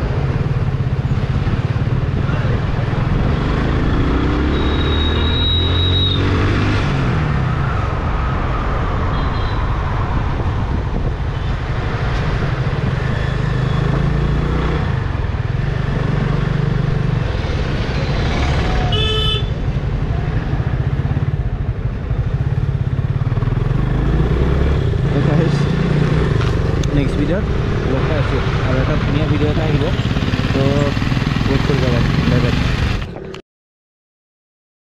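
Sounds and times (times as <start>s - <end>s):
wind noise: 6.9s - 13.5s
horn toot: 18.8s - 19.6s
motorcycle engine running: 28.9s - 33.4s.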